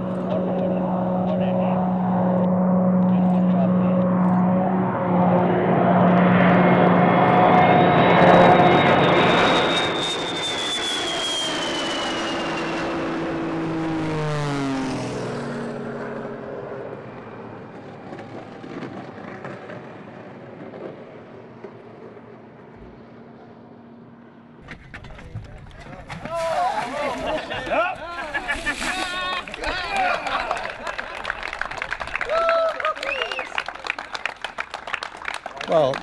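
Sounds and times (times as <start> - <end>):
jet aircraft flying past: 0.0 - 36.0.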